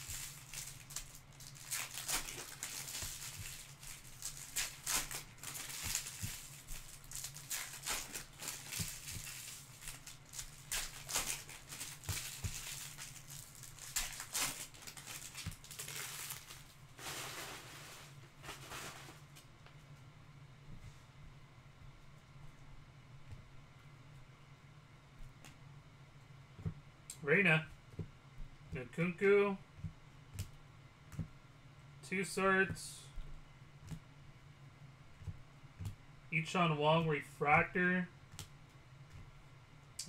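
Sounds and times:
foil wrappers crinkling and tearing: 0:00.0 - 0:19.3
steady low hum: 0:00.0 - 0:40.0.

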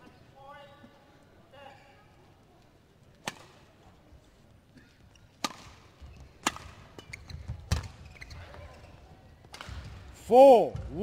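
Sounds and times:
badminton rackets hitting shuttlecock: 0:03.2 - 0:03.7, 0:04.8 - 0:08.3, 0:09.4 - 0:10.0.

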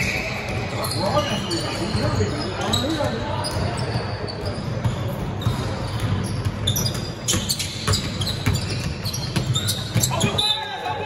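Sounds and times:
gym background noise: 0:00.0 - 0:11.0
basketball bouncing on floor: 0:04.8 - 0:10.3.

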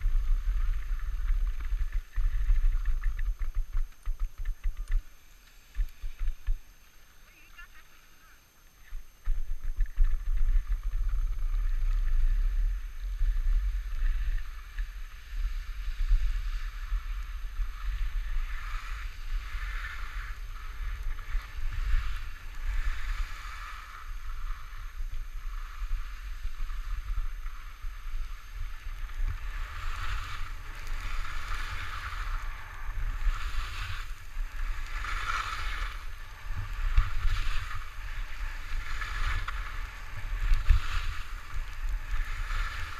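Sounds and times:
skis hissing on snow: 0:11.4 - 0:42.9.

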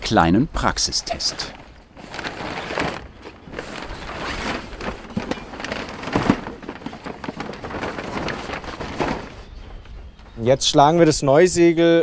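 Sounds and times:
sailcloth crackling and rustling: 0:01.0 - 0:10.4.

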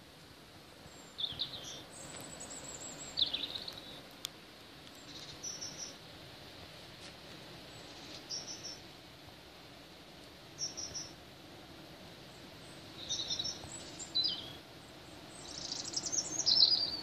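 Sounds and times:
rain and wind hiss: 0:00.0 - 0:17.0
small birds chirping: 0:00.6 - 0:06.1, 0:07.6 - 0:08.9, 0:10.5 - 0:11.2, 0:12.2 - 0:17.0.

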